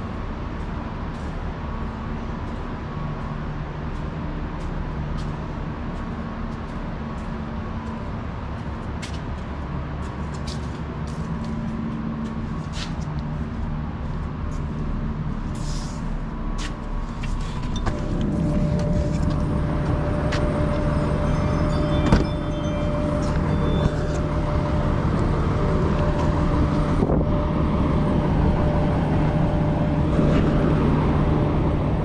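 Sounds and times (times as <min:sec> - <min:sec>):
diesel engines idling: 0:00.0 - 0:32.0
steady higher hum: 0:09.6 - 0:32.0.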